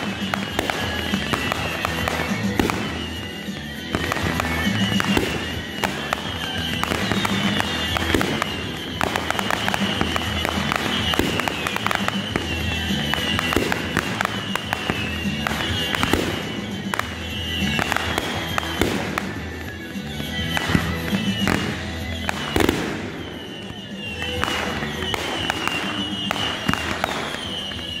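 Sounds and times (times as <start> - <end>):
fireworks bangs and crackles: 0.0 - 28.0
music playing: 0.0 - 28.0.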